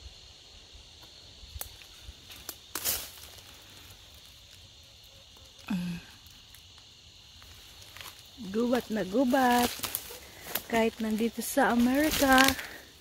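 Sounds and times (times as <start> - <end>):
insect chorus: 0.0 - 13.0
footsteps rustling in dry undergrowth: 1.6 - 4.8, 6.6 - 13.0.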